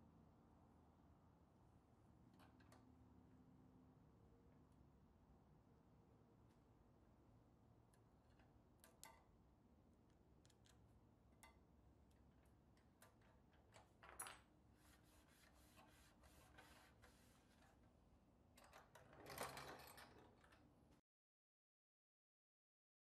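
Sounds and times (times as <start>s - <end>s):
fingertip rubbing strokes: 14.8s - 17.6s.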